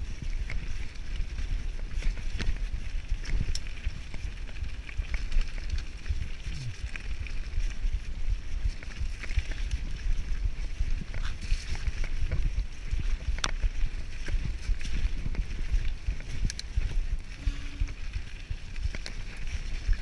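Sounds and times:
bike rattles and clicks: 0.0 - 20.0
tyres on dirt and leaves: 0.0 - 20.0
wind buffeting microphone: 0.0 - 20.0.

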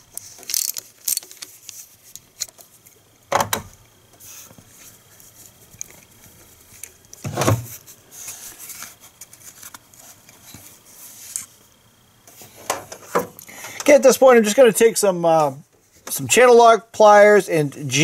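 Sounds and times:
ratchet clicks and rattles: 0.1 - 2.7.

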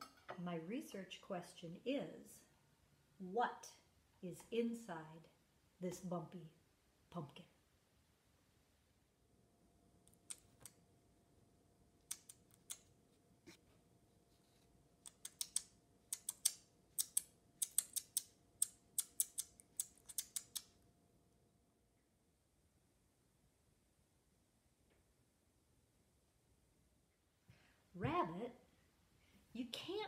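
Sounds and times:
sharp high-pitched clicks: 12.1 - 12.9, 15.1 - 20.7.

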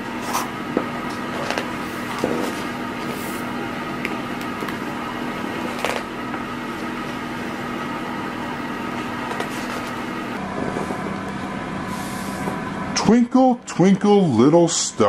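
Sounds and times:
machine hum: 0.0 - 15.0
book pages turning: 1.1 - 6.2, 9.2 - 10.2.

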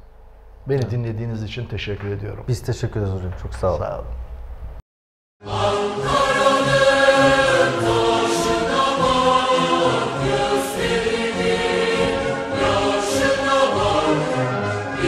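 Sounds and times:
choir singing long held notes: 5.4 - 15.0.

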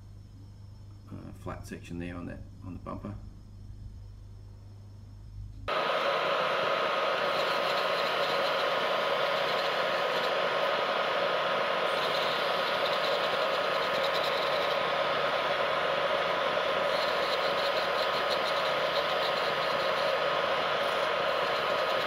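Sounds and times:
paint sprayer motor drone: 5.7 - 22.0.

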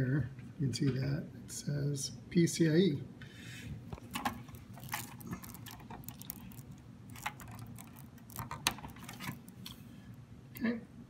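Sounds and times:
plastic cable connectors clicking: 3.9 - 9.8.

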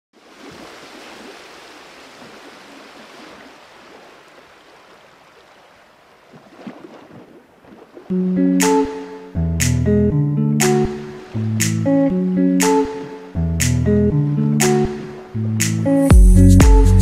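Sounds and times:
wind: 0.1 - 16.0
sea surf rushing: 0.2 - 7.0, 10.6 - 16.1.

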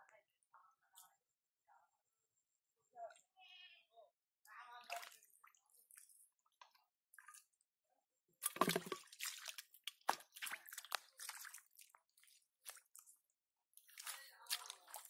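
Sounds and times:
water drips: 4.8 - 7.4, 8.4 - 13.2, 13.8 - 15.0
hands splashing in muddy water: 8.4 - 13.2, 13.8 - 15.0.

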